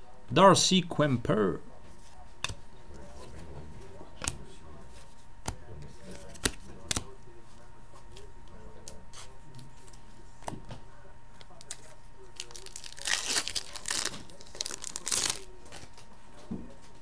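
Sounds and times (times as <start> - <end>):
cards clicking: 5.4 - 7.1
foil wrapper tearing and crinkling: 11.6 - 15.9.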